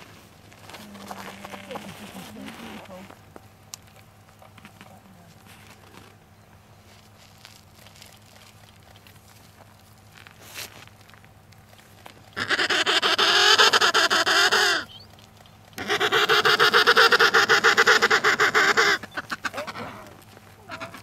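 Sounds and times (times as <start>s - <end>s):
penguin calling: 12.3s - 21.0s.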